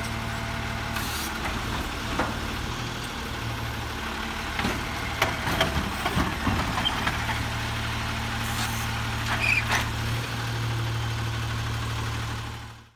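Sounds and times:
garbage truck engine running: 0.0s - 12.9s
clattering knocks of cart: 4.6s - 7.5s.

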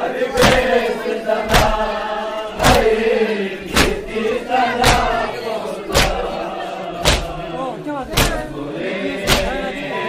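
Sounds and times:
men chanting in unison: 0.0s - 10.0s
chest-beating strikes: 4.8s - 5.3s, 5.9s - 6.4s, 7.0s - 7.5s, 8.1s - 8.5s, 9.2s - 9.7s.

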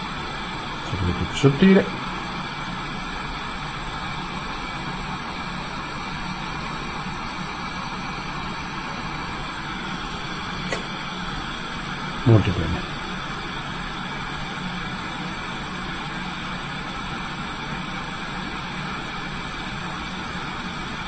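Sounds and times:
torch flame hissing: 0.0s - 21.0s
small click: 10.7s - 10.9s.

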